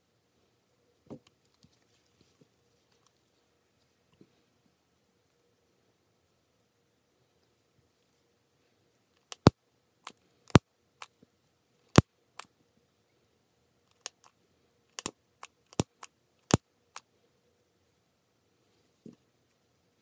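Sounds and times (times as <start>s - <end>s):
sharp clicks of tools handled: 15.0s - 17.1s.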